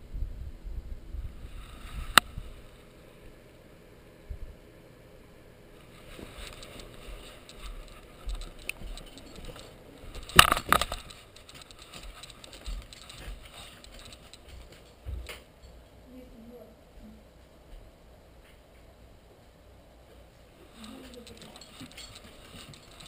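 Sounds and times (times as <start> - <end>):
camera handling rattling: 6.4 - 15.4, 20.8 - 23.0.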